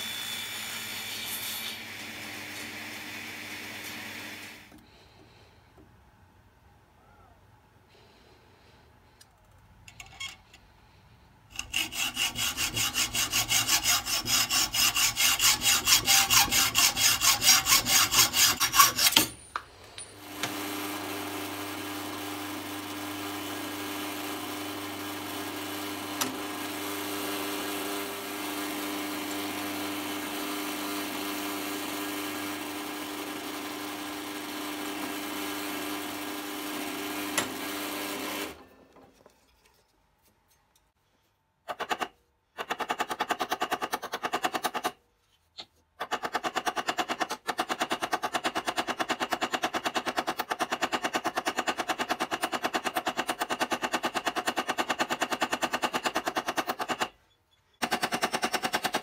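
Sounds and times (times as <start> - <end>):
drill press drilling wood: 0.0 - 4.9, 20.2 - 38.7
hacksaw cutting: 11.5 - 19.4, 25.0 - 38.6, 41.6 - 45.0, 45.6 - 57.2, 57.8 - 59.0.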